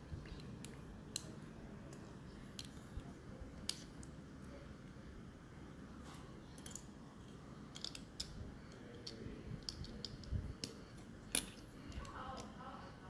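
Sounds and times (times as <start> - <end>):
plastic bricks clicking together: 7.7 - 12.5.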